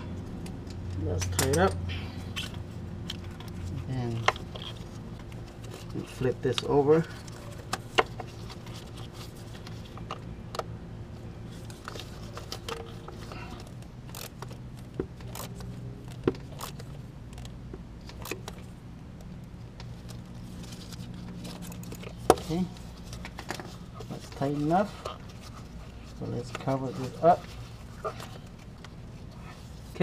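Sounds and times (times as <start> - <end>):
steady low hum: 0.0 - 30.0
wrench clicking and scraping: 11.9 - 18.6.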